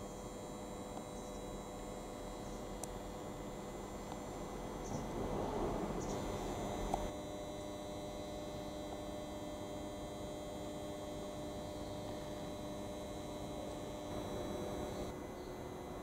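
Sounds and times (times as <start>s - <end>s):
electrical hum: 0.0s - 16.0s.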